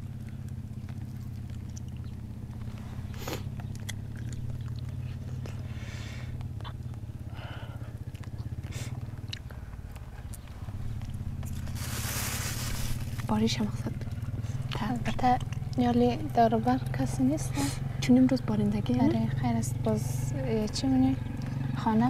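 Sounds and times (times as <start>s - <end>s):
crunching of dry snack: 0.0s - 5.7s, 8.0s - 13.3s
low hum: 0.0s - 22.0s.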